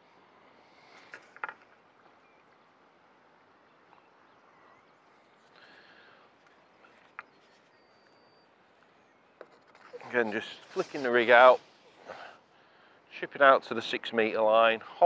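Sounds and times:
fishing tackle clicks and knocks: 1.1s - 1.8s.

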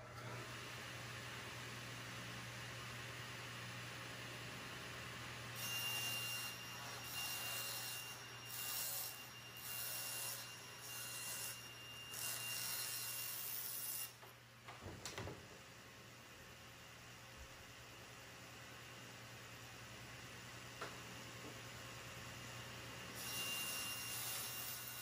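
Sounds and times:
table saw cutting plywood: 5.4s - 14.2s, 23.1s - 25.0s.

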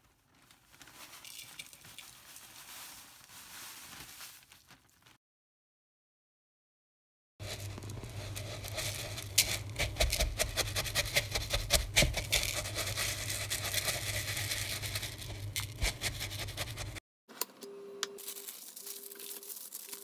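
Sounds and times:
spatula scraping bowl: 7.4s - 17.0s.

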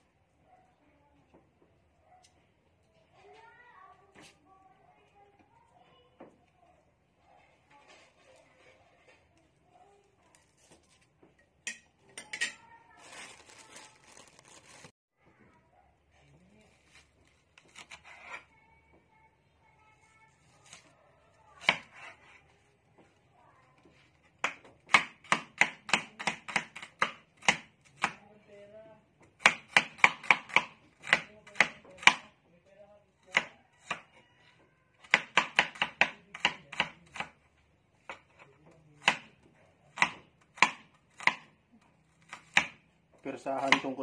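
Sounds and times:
cleaver chopping on cutting board: 43.6s - 44.0s.

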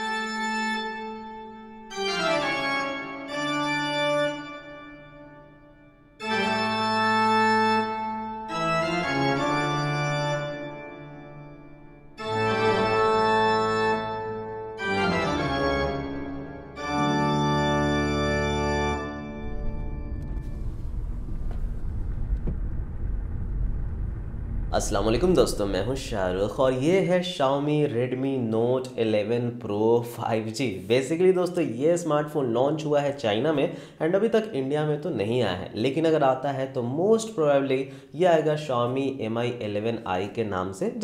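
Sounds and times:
organ-like keyboard chords: 0.0s - 20.4s.

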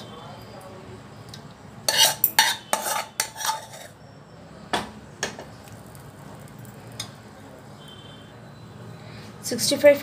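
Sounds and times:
spoon scraping and clinking bowl: 1.9s - 4.0s.

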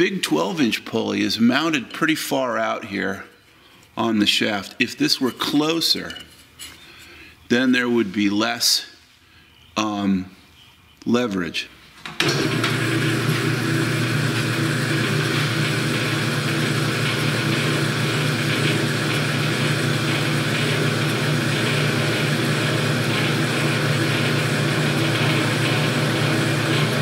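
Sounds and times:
bandsaw running: 12.2s - 27.0s.

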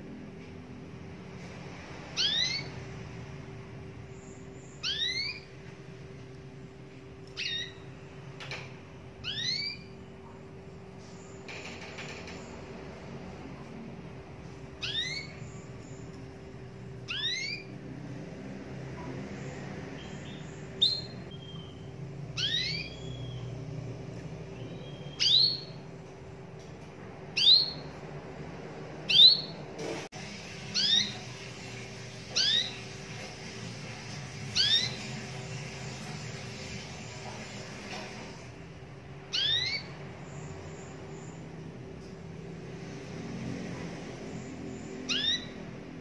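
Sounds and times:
canary rising calls: 2.1s - 2.8s, 4.7s - 5.6s, 7.3s - 8.0s, 9.2s - 10.0s, 14.8s - 15.8s, 16.9s - 17.8s, 20.0s - 23.6s, 30.5s - 38.4s, 39.3s - 40.0s, 44.5s - 46.0s.

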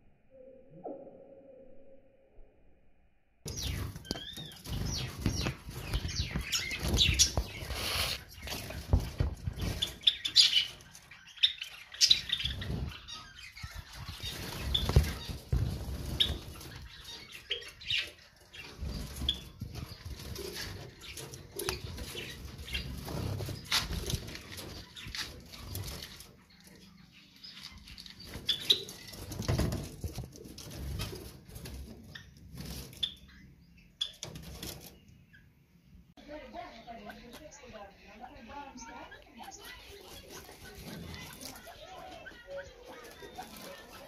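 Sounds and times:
finches chirping: 3.5s - 29.7s
birds fluttering in cage: 3.5s - 35.3s, 38.7s - 44.0s.

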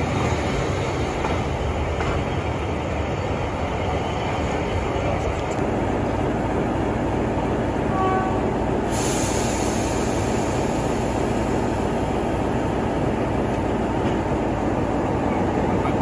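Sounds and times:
train rumbling on rails: 0.0s - 16.0s
high hiss: 8.8s - 12.4s.

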